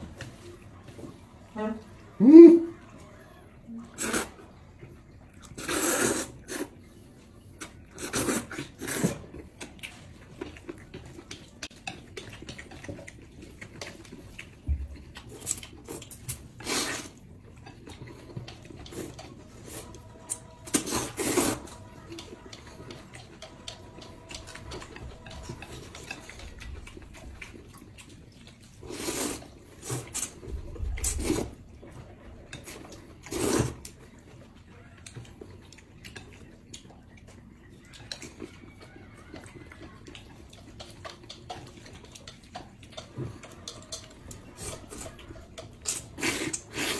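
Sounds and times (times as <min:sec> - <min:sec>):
chewing: 0:00.0 - 0:46.9
loud noodle slurping: 0:03.9 - 0:04.6, 0:05.4 - 0:06.8, 0:07.9 - 0:09.3, 0:15.3 - 0:17.2, 0:17.9 - 0:27.6, 0:28.7 - 0:31.6, 0:32.5 - 0:33.9, 0:43.0 - 0:46.9
chopsticks clicking against plates: 0:09.6 - 0:14.5, 0:15.1 - 0:30.4, 0:37.8 - 0:46.9.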